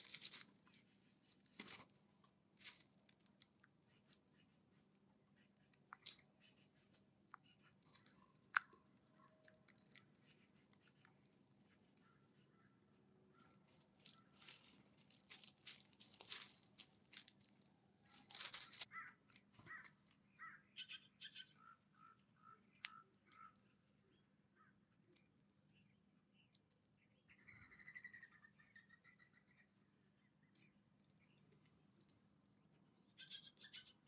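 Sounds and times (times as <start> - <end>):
rustling in dry leaves: 0.0 - 4.4, 13.3 - 20.2
birds pecking at seed: 0.0 - 20.2, 21.9 - 23.9
bird call: 18.6 - 23.6, 33.0 - 34.0.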